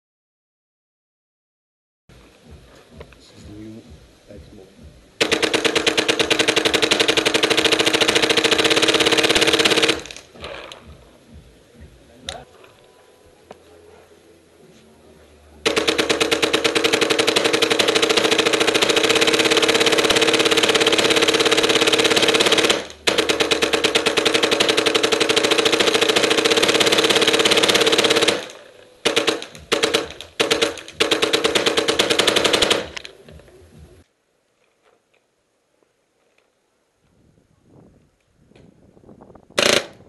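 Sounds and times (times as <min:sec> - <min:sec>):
paintball marker rapid firing: 0:05.2 - 0:10.8, 0:15.6 - 0:33.2, 0:39.6 - 0:40.0.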